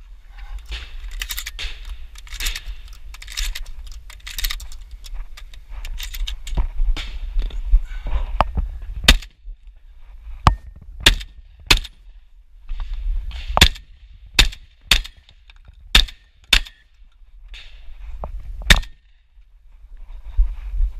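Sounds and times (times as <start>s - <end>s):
shotgun shots: 11.0s - 12.0s, 13.4s - 15.2s.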